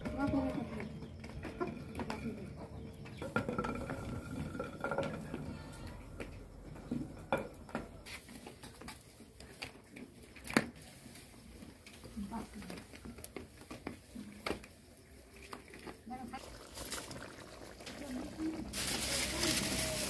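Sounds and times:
metal pots and bowls clinking: 1.4s - 6.0s.

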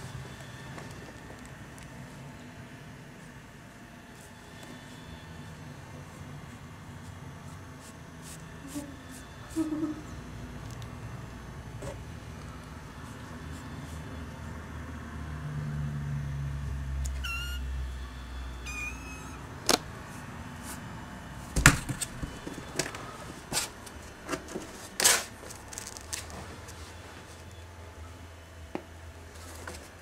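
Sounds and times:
kitten meowing: 17.2s - 17.7s, 18.6s - 19.4s.

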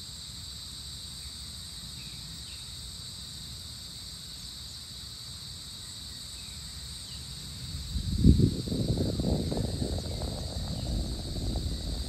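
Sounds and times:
insects trilling: 0.0s - 12.0s
low rumble: 7.9s - 12.0s.

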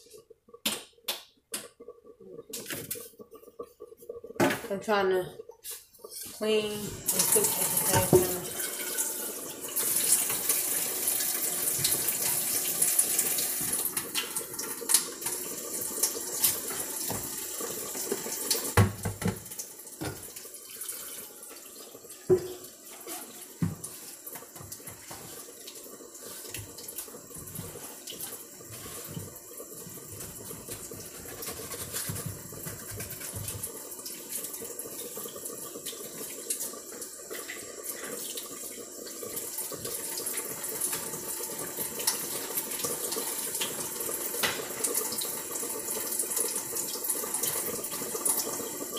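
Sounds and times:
faucet running into sink: 2.2s - 48.9s
dishes clinking against sink: 7.8s - 9.4s, 22.3s - 23.9s.

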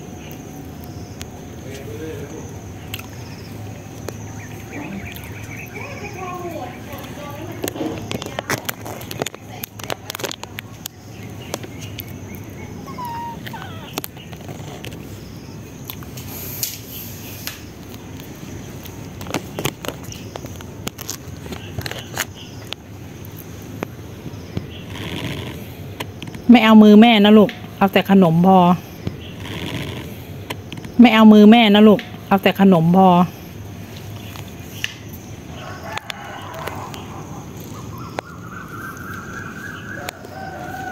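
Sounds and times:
cats crunching snack: 0.0s - 26.5s, 33.7s - 40.9s
cat mewing: 12.8s - 14.3s
rooster crowing: 12.9s - 14.0s, 35.5s - 37.4s, 38.6s - 40.9s.

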